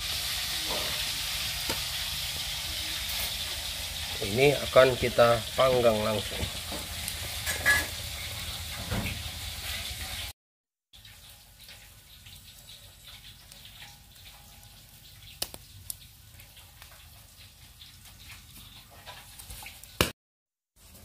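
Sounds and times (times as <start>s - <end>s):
charcoal fire crackling and hissing: 0.0s - 10.3s, 11.0s - 20.1s
chicken sizzling on grill: 0.0s - 20.1s, 20.7s - 21.0s
sharp pops: 1.6s - 1.9s.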